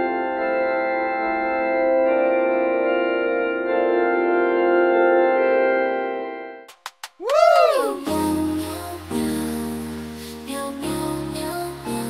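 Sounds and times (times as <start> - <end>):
organ playing sustained chords: 0.0 - 6.6.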